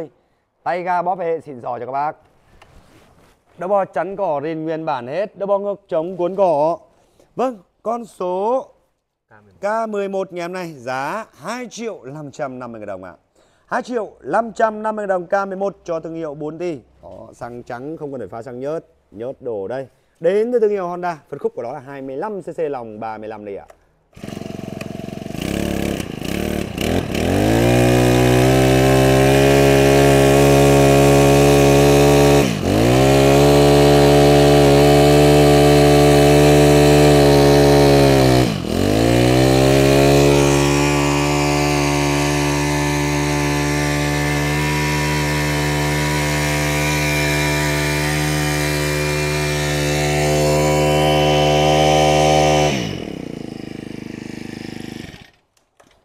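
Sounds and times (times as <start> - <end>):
brush cutter engine revving: 24.1 - 55.4.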